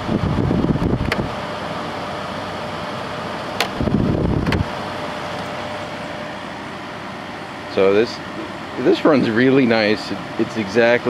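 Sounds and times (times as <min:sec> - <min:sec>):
air conditioner humming: 0:00.0 - 0:11.0
air conditioner click: 0:00.7 - 0:01.4, 0:03.5 - 0:04.7.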